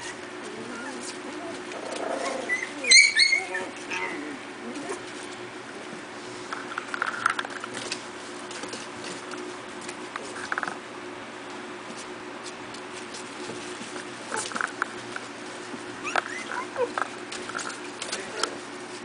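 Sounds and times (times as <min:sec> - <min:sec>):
puppies squeaking and yelping: 0:00.0 - 0:05.2, 0:15.9 - 0:18.4
paws scratching on plastic tub: 0:00.0 - 0:19.0
steady low hum: 0:00.0 - 0:19.0.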